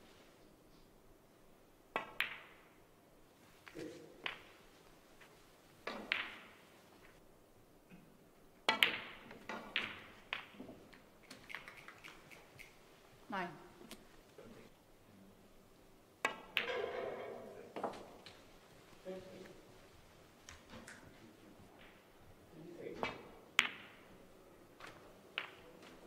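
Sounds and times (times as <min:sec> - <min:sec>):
snooker balls clicking: 0:01.9 - 0:02.7, 0:03.6 - 0:07.2, 0:08.6 - 0:12.8, 0:16.2 - 0:17.0, 0:17.7 - 0:19.6, 0:21.8 - 0:22.1, 0:23.0 - 0:24.1, 0:24.8 - 0:26.0
cue tip striking ball: 0:05.9 - 0:06.6, 0:08.7 - 0:10.8.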